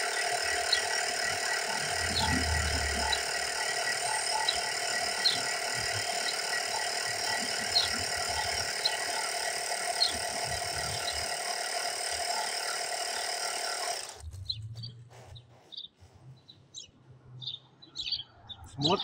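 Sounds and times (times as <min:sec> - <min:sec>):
electric tyre pump running: 0:00.0 - 0:14.3
birds chirping: 0:00.0 - 0:19.0.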